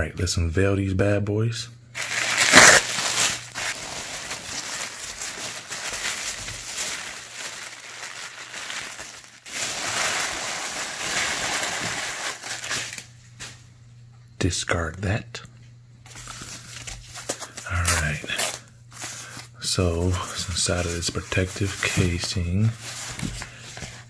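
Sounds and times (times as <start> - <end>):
tissue paper rustling and crinkling: 2.0 - 13.1, 20.1 - 24.0.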